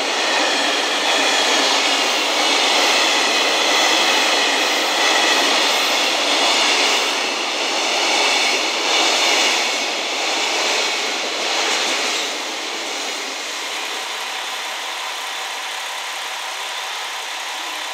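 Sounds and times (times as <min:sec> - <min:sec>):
freight train wheels rumbling: 0:00.0 - 0:17.9
diesel railcar idling: 0:13.4 - 0:17.9.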